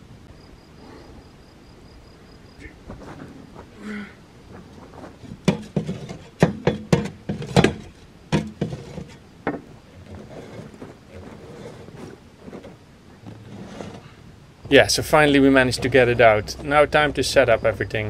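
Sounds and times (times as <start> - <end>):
scraping and shuffling: 2.6 - 17.8
sharp knocks and bangs: 5.4 - 9.7.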